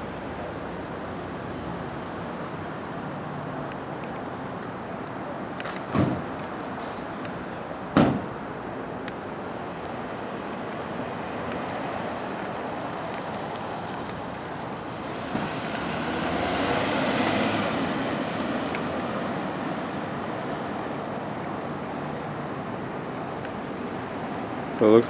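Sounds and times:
vehicles driving slowly: 0:00.0 - 0:25.0
vehicle passing close: 0:10.0 - 0:23.4.

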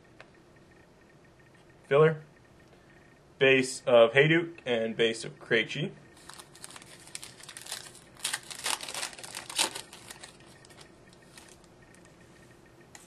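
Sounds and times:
foil wrapper crinkling: 0:06.2 - 0:11.7.

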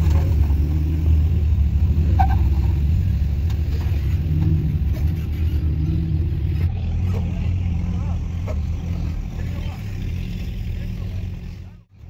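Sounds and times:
engine running low: 0:00.0 - 0:12.0.

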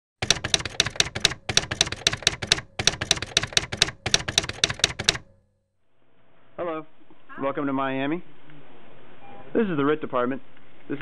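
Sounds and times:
typewriter keystrokes: 0:00.2 - 0:05.4.

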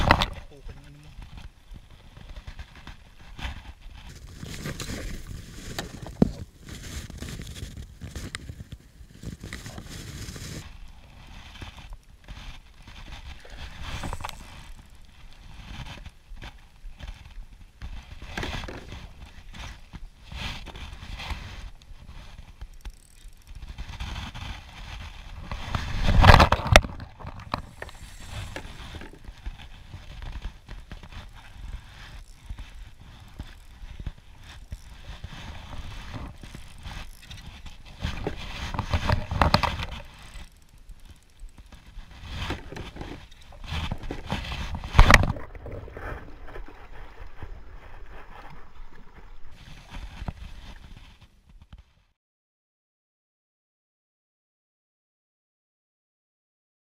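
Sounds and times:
spinning reel being cranked: 0:22.7 - 0:23.7, 0:27.6 - 0:29.0, 0:31.6 - 0:41.9.

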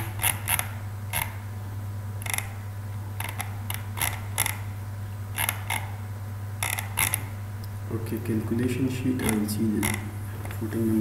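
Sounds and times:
steady low hum: 0:00.0 - 0:11.0
computer mouse clicking: 0:03.2 - 0:04.6, 0:09.2 - 0:10.6.

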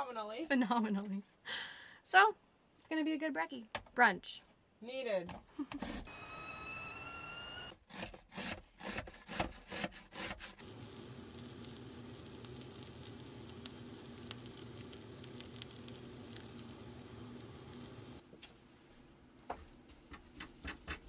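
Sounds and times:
potatoes sizzling in pan: 0:10.6 - 0:18.2.

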